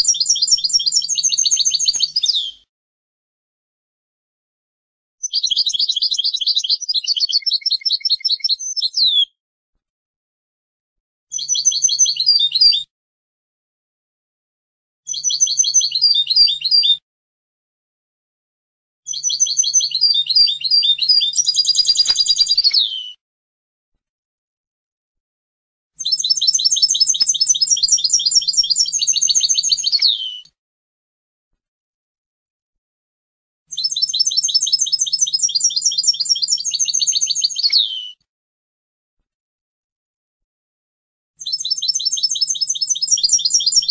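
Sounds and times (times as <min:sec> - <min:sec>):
goldfinch twittering song: 0:00.0 - 0:02.6, 0:05.2 - 0:09.3, 0:11.4 - 0:12.8, 0:15.1 - 0:17.0, 0:19.1 - 0:23.2, 0:26.0 - 0:30.4, 0:33.7 - 0:38.2, 0:41.4 - 0:43.9.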